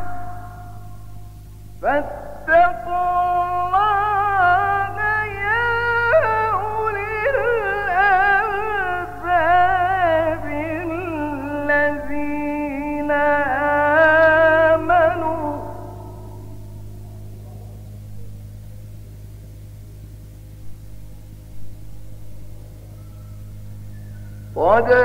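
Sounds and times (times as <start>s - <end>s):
steady low hum: 0.0s - 25.0s
man reciting melodically: 1.8s - 16.3s, 24.5s - 25.0s.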